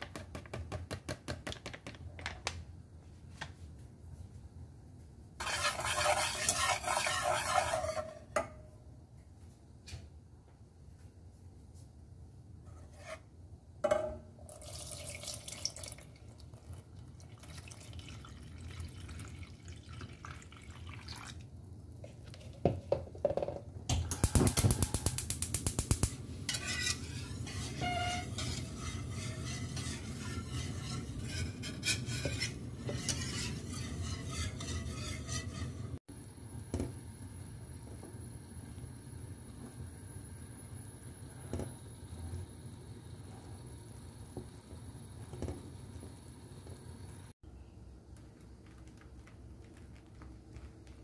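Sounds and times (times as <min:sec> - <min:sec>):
wooden spoon stirring liquid: 0:05.4 - 0:08.2, 0:26.5 - 0:36.0
water pouring into saucepan: 0:14.5 - 0:21.5.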